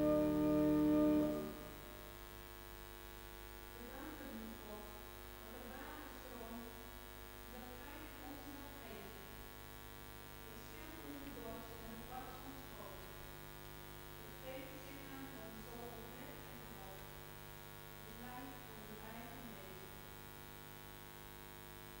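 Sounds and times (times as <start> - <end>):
church organ chord: 0.0 - 2.0
electrical mains hum: 0.0 - 22.0.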